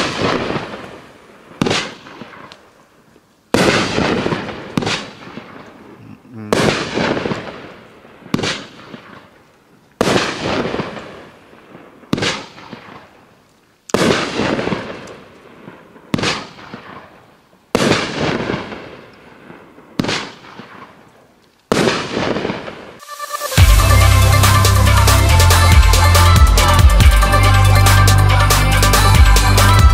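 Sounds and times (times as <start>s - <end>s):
firework cake bangs: 0.0s - 1.0s, 1.6s - 2.5s, 3.6s - 5.6s, 6.5s - 9.3s, 10.0s - 11.3s, 12.1s - 13.1s, 14.0s - 15.0s, 16.1s - 17.2s, 17.8s - 19.0s, 20.0s - 21.0s, 21.7s - 23.0s.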